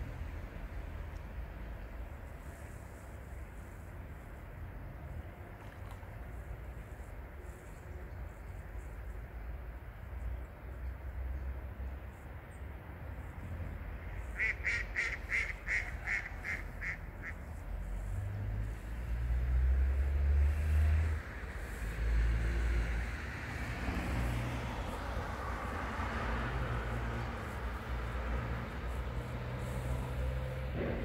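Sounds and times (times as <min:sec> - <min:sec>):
duck quacking: 0:14.4 - 0:17.4.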